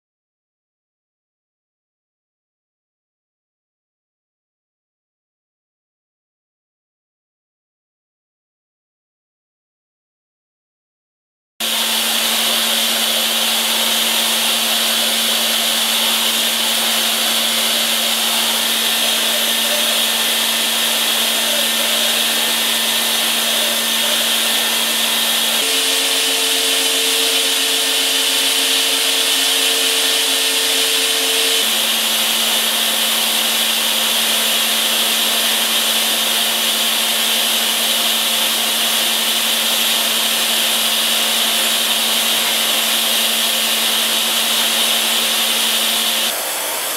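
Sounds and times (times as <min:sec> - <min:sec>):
high steady tone: 0:11.6 - 0:33.6
constant machine hum: 0:11.6 - 0:46.3
milling spindle cutting metal: 0:11.6 - 0:46.9.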